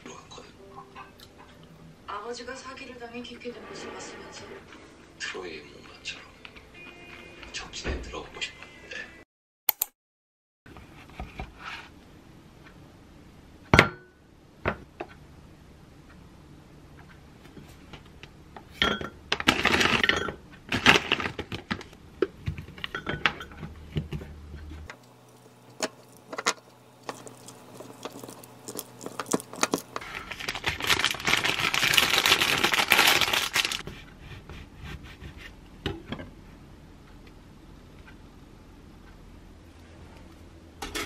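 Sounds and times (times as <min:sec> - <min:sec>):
spoon stirring and scraping: 0:25.2 - 0:30.8.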